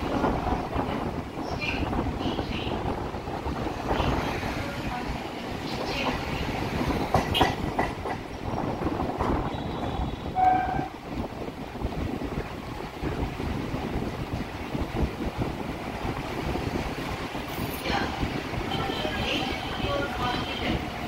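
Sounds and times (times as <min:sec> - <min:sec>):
electric train running on rails: 0:00.0 - 0:21.0
sharp knocks: 0:07.1 - 0:08.2.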